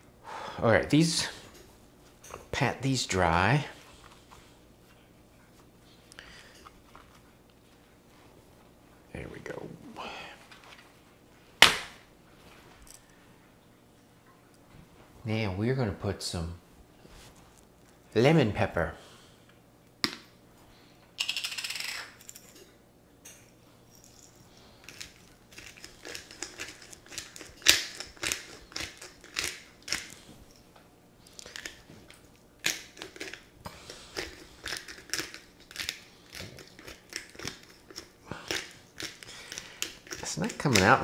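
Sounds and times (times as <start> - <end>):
spice shaker clicking and rattling: 21.2 - 22.4, 24.8 - 30.2, 32.6 - 33.5, 34.1 - 40.9.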